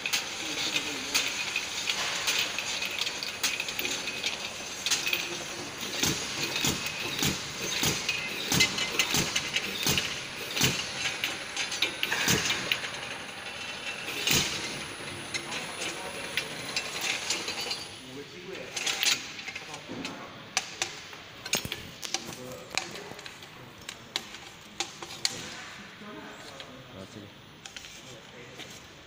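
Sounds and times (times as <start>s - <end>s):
labeling machine whirring: 0.0s - 18.0s
sharp clicks and clacks: 0.1s - 17.8s.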